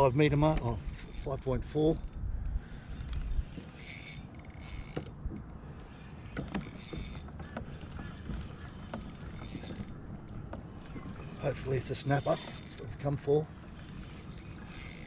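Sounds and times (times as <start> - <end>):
fishing reel gears whirring: 0.0 - 15.0.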